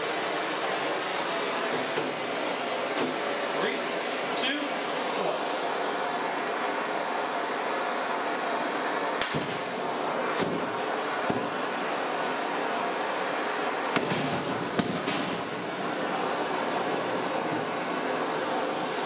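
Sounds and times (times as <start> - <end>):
blowtorch hissing: 0.0 - 19.0
lighters bursting with pops: 9.2 - 11.7, 13.9 - 15.7.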